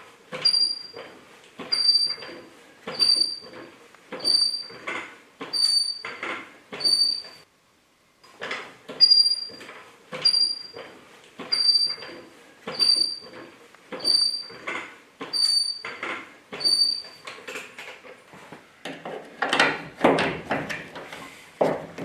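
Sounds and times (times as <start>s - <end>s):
hydraulic jack pumping with squeak: 0.3s - 7.5s, 8.4s - 17.6s.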